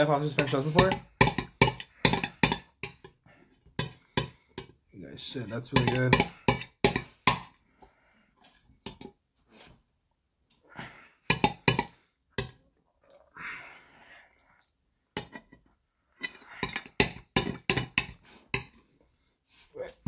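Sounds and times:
cutlery clinking on a ceramic plate: 0:00.7 - 0:03.1, 0:05.7 - 0:07.4, 0:11.3 - 0:12.6, 0:16.2 - 0:18.8.

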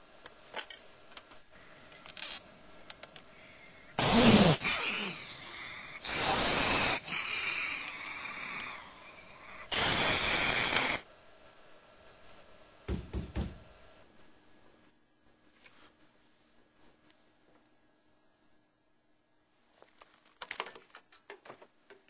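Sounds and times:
breathy hissing bursts: 0:03.3 - 0:11.1.

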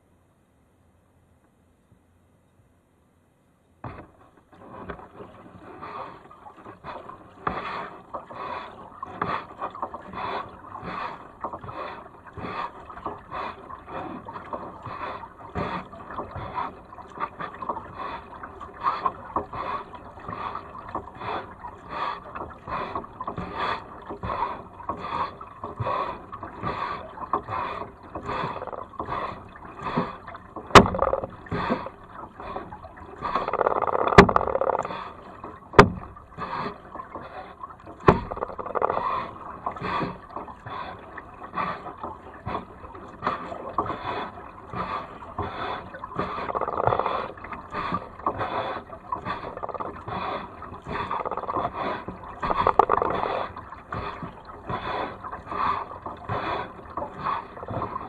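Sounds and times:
kayak paddle splashing: 0:03.8 - 0:58.0
sharp knocks: 0:30.7 - 0:31.7.

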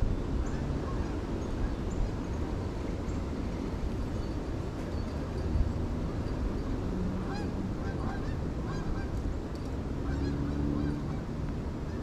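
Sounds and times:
geese honking: 0:07.2 - 0:09.2, 0:10.0 - 0:11.3.

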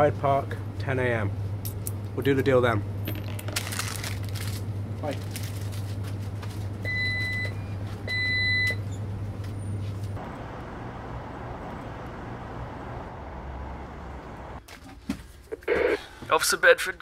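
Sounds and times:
street noise: 0:00.6 - 0:14.7
door-entry buzzer beeps: 0:06.9 - 0:08.9.

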